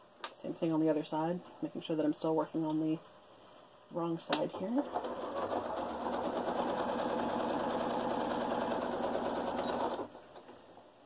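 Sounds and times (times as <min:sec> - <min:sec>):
sewing machine stitching: 0:04.5 - 0:10.1.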